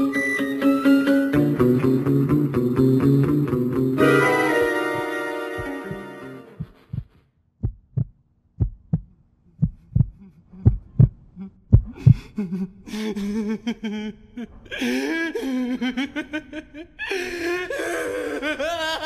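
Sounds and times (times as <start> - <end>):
heartbeat thumps: 4.9 - 12.4.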